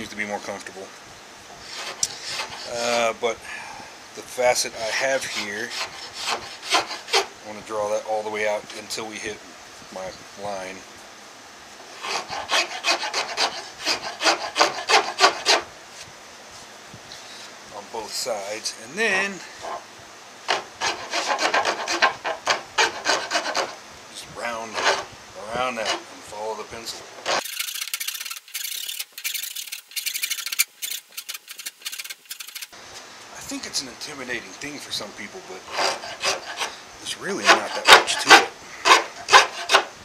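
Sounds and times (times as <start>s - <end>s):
file rasping on wood: 1.6s - 3.1s, 4.8s - 7.3s, 12.0s - 15.7s, 20.5s - 23.8s, 24.6s - 26.1s, 27.2s - 27.4s, 35.7s - 36.8s, 37.4s - 39.9s.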